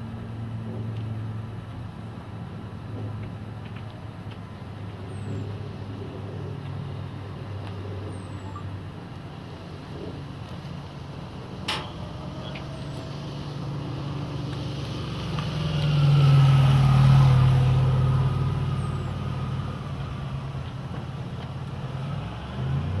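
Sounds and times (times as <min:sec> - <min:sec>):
vehicle engine passing by: 0:09.7 - 0:23.0.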